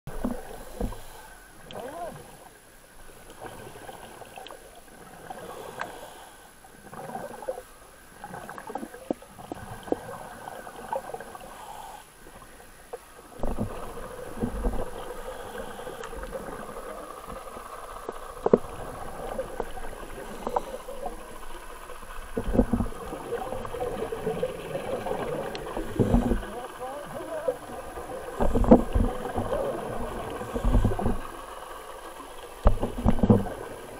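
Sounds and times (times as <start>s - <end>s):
diver breathing through regulator: 5.2s - 6.6s, 11.4s - 12.2s, 13.5s - 17.0s, 18.8s - 21.7s, 24.1s - 26.8s, 28.4s - 31.5s
gurgling exhaled bubbles: 6.9s - 11.8s, 13.4s - 33.9s.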